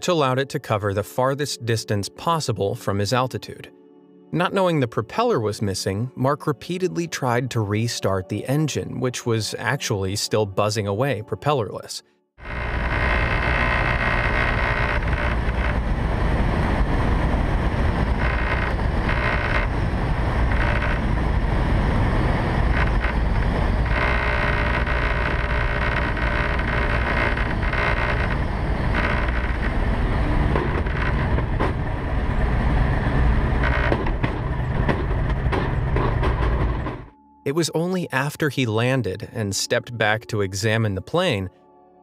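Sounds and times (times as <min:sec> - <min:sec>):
deep low rumble: 0:12.4 - 0:37.1
engine humming: 0:12.4 - 0:37.1
wind rushing in cockpit: 0:14.4 - 0:25.0, 0:27.4 - 0:37.1.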